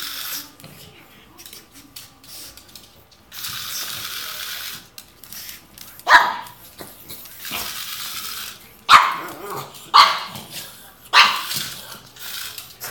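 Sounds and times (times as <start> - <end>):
dog barking: 6.1 - 6.6, 8.9 - 10.5, 11.1 - 11.6.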